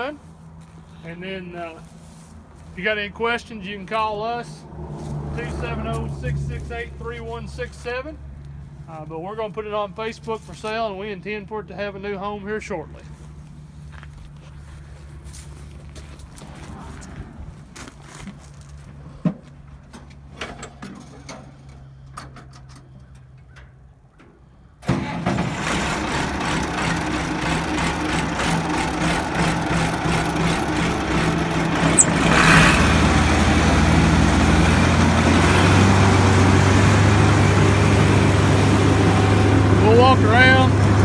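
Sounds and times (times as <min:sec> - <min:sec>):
tractor engine idling: 0:21.0 - 0:41.0
loud mechanical din: 0:24.8 - 0:33.5.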